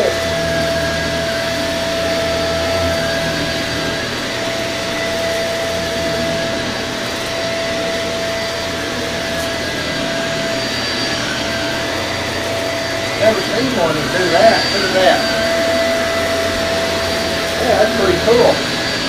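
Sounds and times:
vacuum cleaner on carpet: 0.0s - 19.0s.

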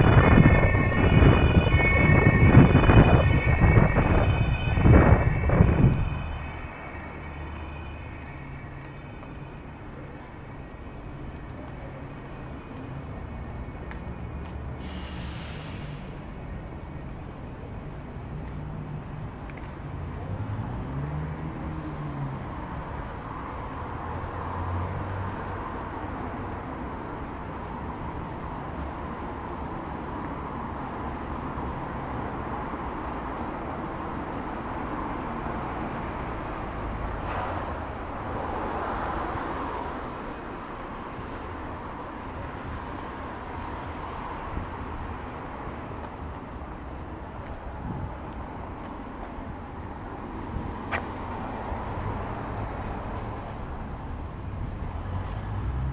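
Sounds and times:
traffic noise: 0.0s - 55.9s
vehicle passing: 50.4s - 55.9s.

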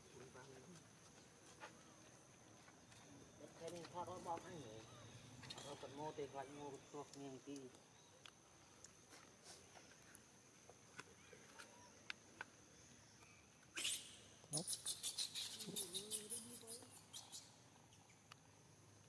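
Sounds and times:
monkey squealing call: 13.7s - 17.5s
low wavering monkey call: 13.7s - 17.6s.

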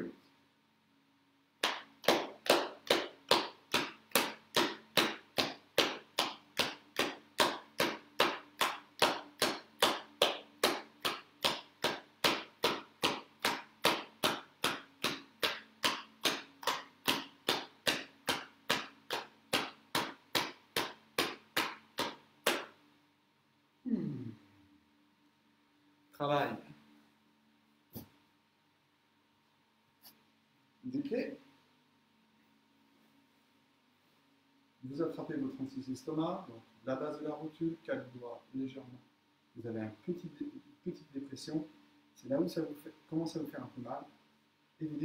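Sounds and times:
hands slapping thigh: 1.6s - 22.8s, 27.9s - 28.2s.

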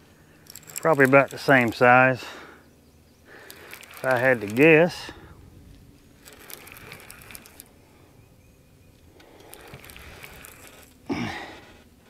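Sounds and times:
fishing reel clicking: 0.4s - 2.2s, 3.3s - 5.2s, 6.2s - 7.8s, 9.2s - 11.0s.

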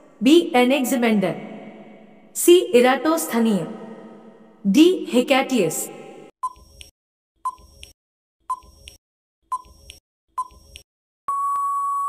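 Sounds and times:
short beeping ticks: 7.4s - 7.7s, 8.5s - 10.6s
long steady beep: 11.3s - 12.0s.

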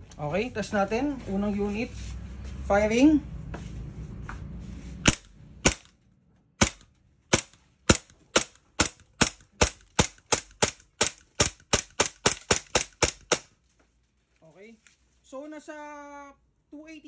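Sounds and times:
airsoft pistol shots: 5.0s - 6.0s, 6.6s - 13.5s.

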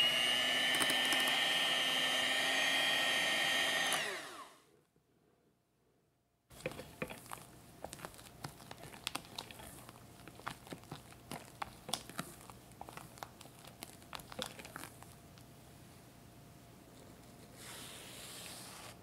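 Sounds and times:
spatula scraping glass bowl: 6.5s - 13.0s
cream squelching: 6.5s - 16.0s.

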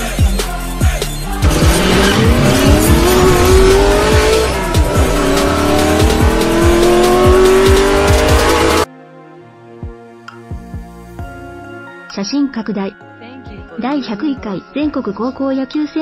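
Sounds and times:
electronic music with heavy beat: 0.0s - 8.9s
race car engine accelerating: 1.3s - 8.9s.

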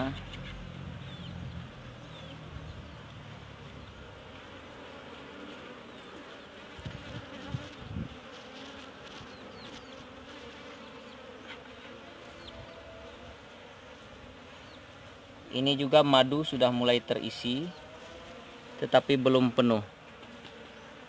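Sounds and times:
bees buzzing: 0.0s - 21.0s.

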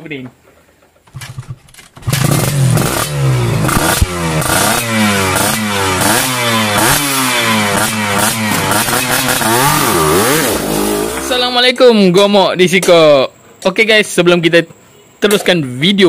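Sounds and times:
two-stroke motorcycle engine revving: 1.1s - 11.3s.

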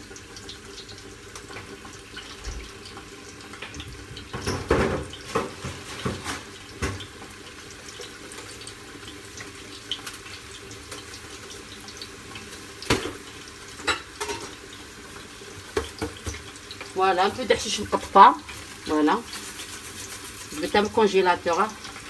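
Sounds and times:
watery kitchen hiss: 0.0s - 22.0s
pots or utensils knocking: 3.8s - 7.1s.

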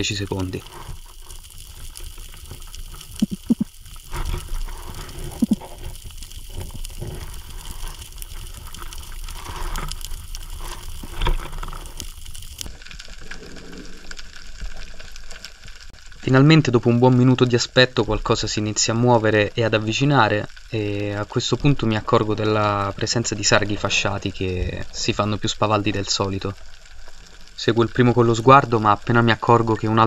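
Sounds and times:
fine crackling: 0.0s - 16.2s.

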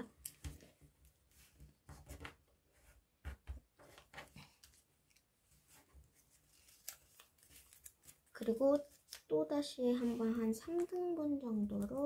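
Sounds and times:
paper rustling and crinkling: 3.8s - 9.3s, 9.9s - 12.0s.

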